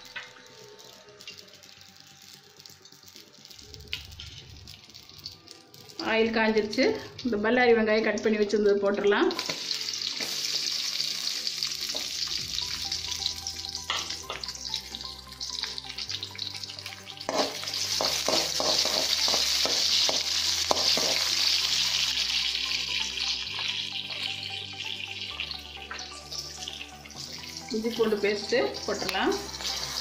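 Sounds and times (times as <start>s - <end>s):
onions sizzling in oil: 0.0s - 30.0s
metal spatula scraping a pan: 17.2s - 21.3s.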